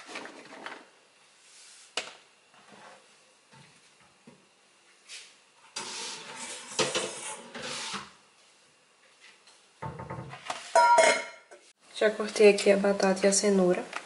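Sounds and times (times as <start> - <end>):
dishes clattering and scraping: 5.8 - 8.1, 10.7 - 11.6.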